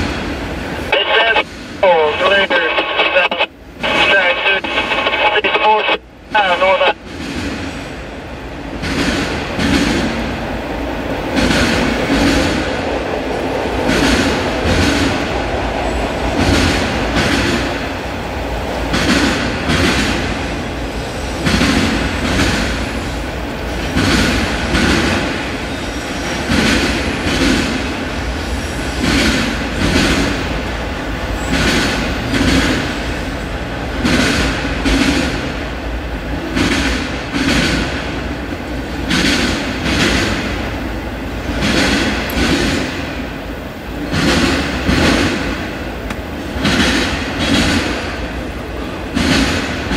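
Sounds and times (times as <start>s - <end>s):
freight train rumbling: 0.0s - 49.9s
wheels clattering on rails: 8.7s - 17.9s, 18.6s - 28.0s, 31.3s - 33.1s, 36.4s - 43.3s, 44.0s - 49.9s.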